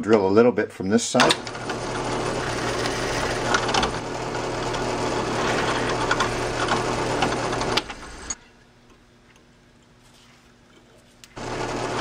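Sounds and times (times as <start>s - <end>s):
drill bit cutting ticks: 1.2s - 8.4s
drill press motor hum: 1.3s - 8.4s, 11.4s - 12.0s.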